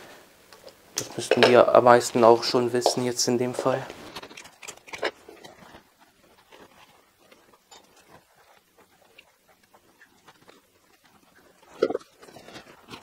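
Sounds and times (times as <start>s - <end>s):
faint clicks and scrapes: 2.9s - 13.0s.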